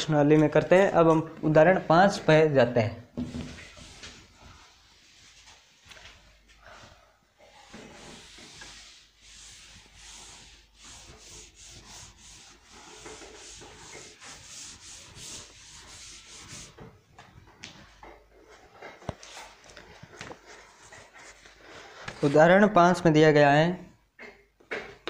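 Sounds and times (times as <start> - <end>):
duster rubbing chalkboard: 3.4 - 5.8, 7.4 - 17.0.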